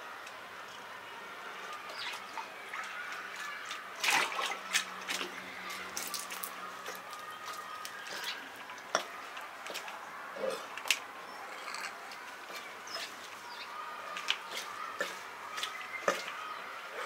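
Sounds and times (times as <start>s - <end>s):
bill and fish clicking: 14.1s - 16.5s.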